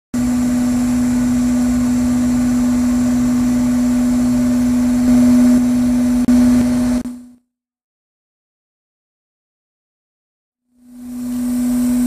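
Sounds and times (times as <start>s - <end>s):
industrial vacuum running: 0.2s - 7.3s, 10.8s - 12.0s.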